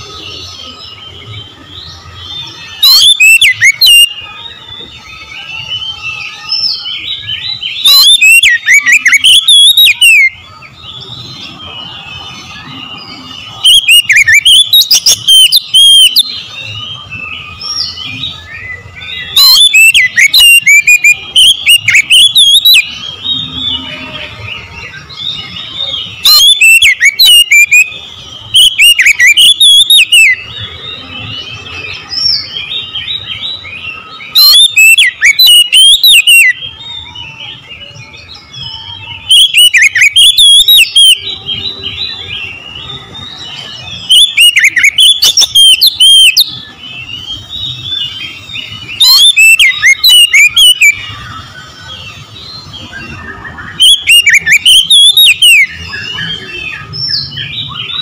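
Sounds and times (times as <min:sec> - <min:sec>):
bird chirping: 0:00.0 - 0:58.0
bird singing whistled song: 0:00.0 - 0:58.0.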